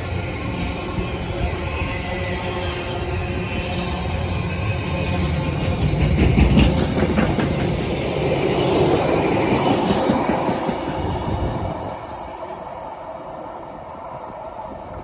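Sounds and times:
freight train wheels rumbling on rails: 0:00.0 - 0:15.0
wheels clicking over rail joints: 0:05.9 - 0:07.9.

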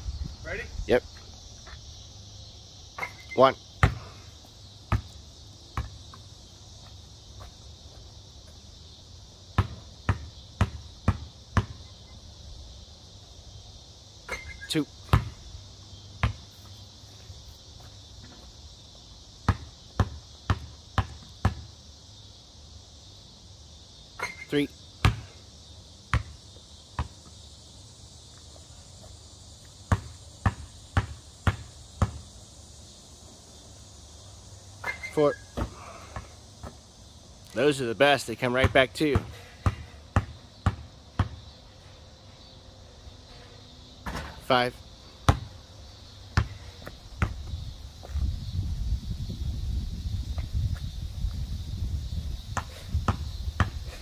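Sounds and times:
high insect buzz: 0:00.0 - 0:54.0
basketball bouncing on concrete: 0:03.8 - 0:04.1, 0:04.9 - 0:06.2, 0:09.6 - 0:11.8, 0:15.0 - 0:15.4, 0:16.2 - 0:16.6, 0:19.4 - 0:21.7, 0:25.0 - 0:25.3, 0:26.1 - 0:26.4, 0:27.0 - 0:27.3, 0:29.9 - 0:32.2, 0:38.6 - 0:41.4, 0:45.3 - 0:45.5, 0:46.4 - 0:48.2, 0:52.6 - 0:53.8.

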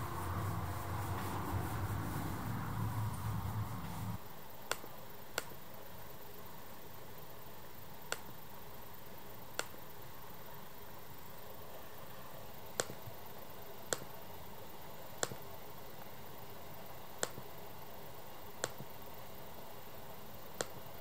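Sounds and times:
low room hiss: 0:00.0 - 0:21.0
computer mouse clicking: 0:04.7 - 0:05.6, 0:08.1 - 0:08.3, 0:09.6 - 0:09.8, 0:12.8 - 0:13.0, 0:15.2 - 0:15.4, 0:17.2 - 0:17.4, 0:18.6 - 0:18.9, 0:20.6 - 0:20.8.

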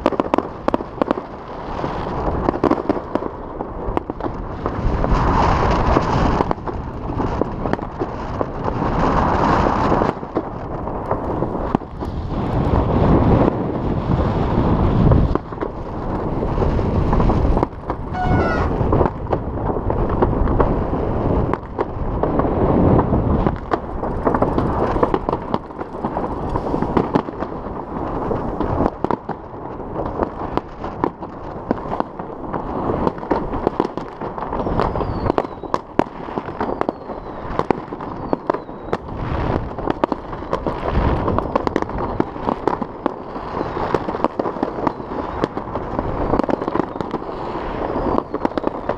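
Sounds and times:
fireworks popping and banging: 0:00.0 - 0:48.9
steady low rumble: 0:10.9 - 0:28.6
firework rising whistle: 0:18.0 - 0:19.0, 0:34.6 - 0:35.8, 0:36.6 - 0:39.1, 0:43.3 - 0:45.6, 0:46.2 - 0:48.9
short falling whistles: 0:18.1 - 0:18.7, 0:34.7 - 0:35.7.

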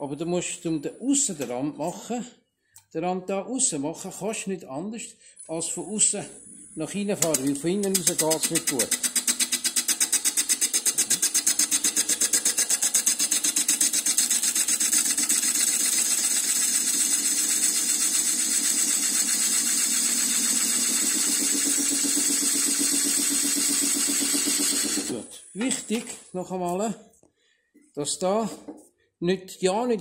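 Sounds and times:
wood lathe running: 0:07.2 - 0:25.2
lathe tool cutting wood hiss: 0:09.4 - 0:25.3.

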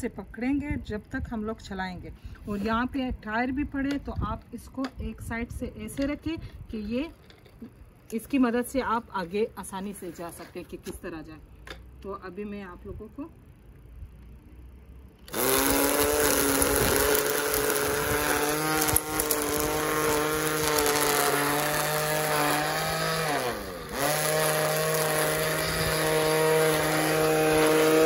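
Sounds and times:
string trimmer whine: 0:15.2 - 0:28.0.

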